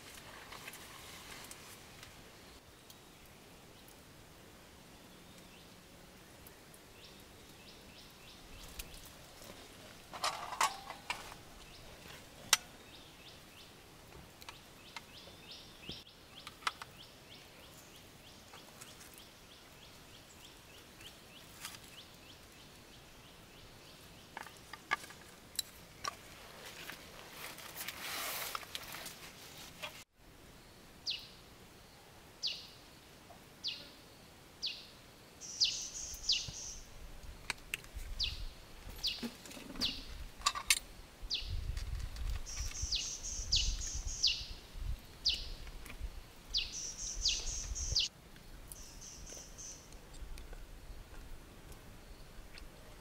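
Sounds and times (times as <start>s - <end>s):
rustling: 0.0s - 2.3s, 24.4s - 30.1s.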